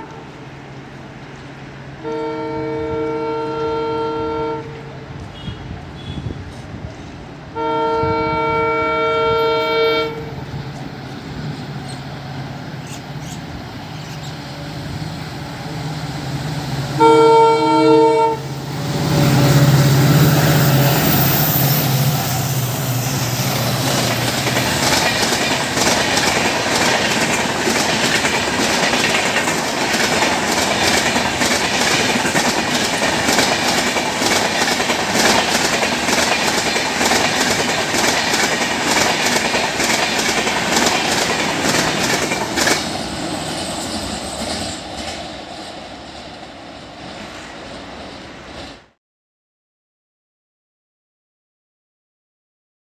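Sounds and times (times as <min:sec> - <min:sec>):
diesel locomotive engine drone: 0:00.0 - 0:49.0
locomotive horn blasts: 0:02.0 - 0:06.4, 0:07.6 - 0:10.4, 0:17.0 - 0:18.6
train wheels clattering on rails: 0:19.8 - 0:48.9.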